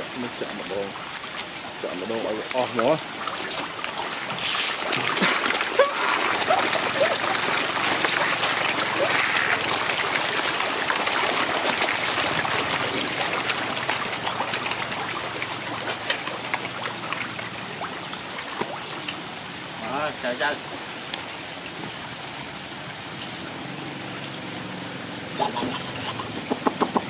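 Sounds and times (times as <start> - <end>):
fish splashing at water surface: 0.0 - 19.3.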